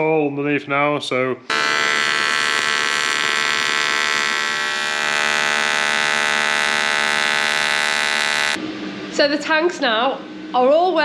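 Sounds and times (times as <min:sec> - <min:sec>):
welding arc buzzing: 0:01.5 - 0:08.6.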